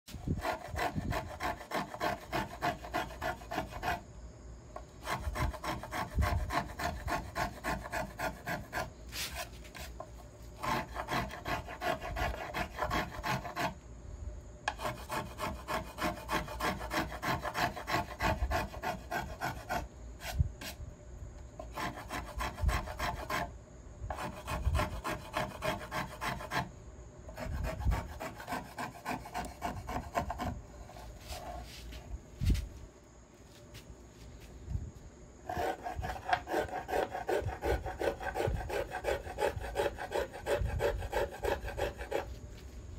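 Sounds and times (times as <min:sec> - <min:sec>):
finger plane scraping wood: 0:00.3 - 0:04.0, 0:05.0 - 0:13.8, 0:14.7 - 0:20.8, 0:21.6 - 0:23.5, 0:24.1 - 0:26.7, 0:27.4 - 0:31.8, 0:35.5 - 0:42.3.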